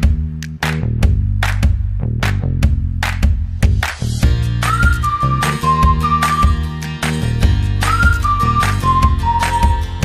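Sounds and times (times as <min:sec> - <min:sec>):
bass and beat: 0:00.0 - 0:10.0
flute-like melody: 0:04.5 - 0:07.2, 0:07.8 - 0:10.0.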